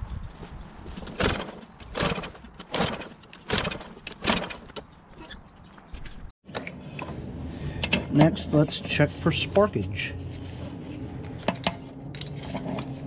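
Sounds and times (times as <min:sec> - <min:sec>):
mower recoil starter pulls: 0:01.0 - 0:05.4.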